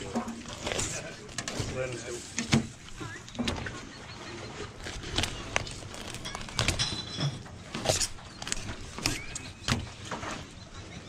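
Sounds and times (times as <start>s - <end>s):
knife scraping through fish: 4.8s - 10.2s.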